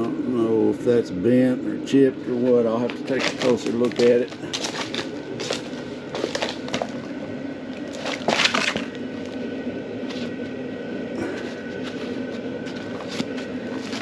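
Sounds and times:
bubble wrap crinkling: 2.8s - 9.4s, 11.6s - 14.0s.

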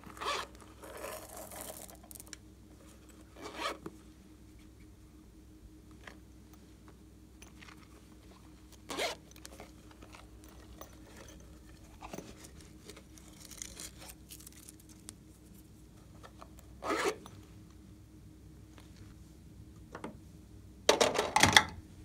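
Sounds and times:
zipper rasps: 0.0s - 2.1s, 3.4s - 3.8s, 8.8s - 9.3s, 16.8s - 17.2s
handling rustles and clicks: 5.9s - 17.8s.

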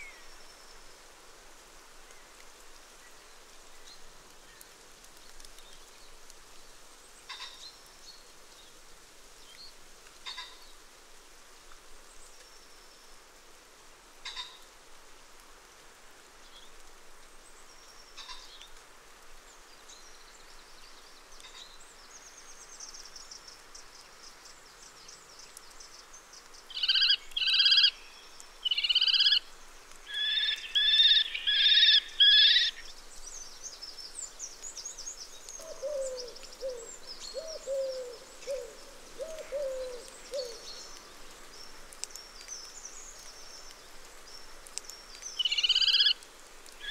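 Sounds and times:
small birds chirping: 19.5s - 46.9s
kestrels calling harshly: 28.7s - 29.4s, 30.2s - 32.8s
bird hooting: 35.6s - 40.6s.

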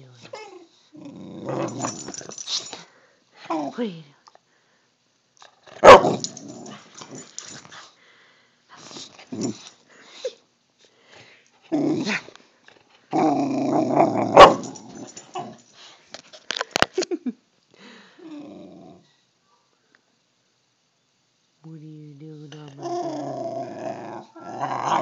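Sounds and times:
dog growling: 0.3s - 2.3s, 5.8s - 7.3s, 11.7s - 12.3s, 13.1s - 15.6s, 18.3s - 19.1s, 22.7s - 25.0s.

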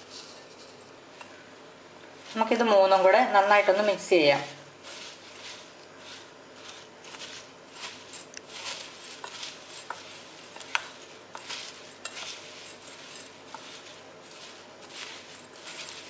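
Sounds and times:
dry scraping rustle: 2.2s - 16.0s.

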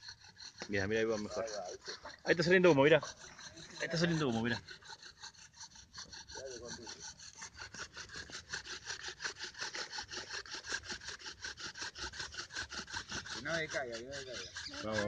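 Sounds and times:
wooden bow drill rasping: 0.0s - 15.0s.

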